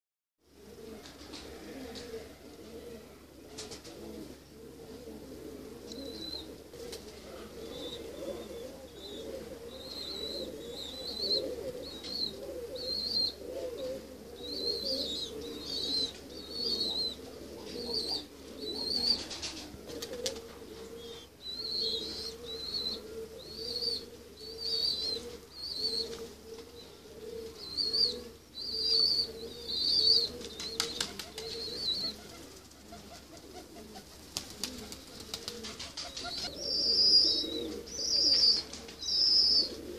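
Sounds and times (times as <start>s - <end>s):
pigeons cooing: 0.5s - 39.9s
small bird chirping: 21.0s - 26.2s, 26.8s - 32.2s, 36.2s - 39.8s.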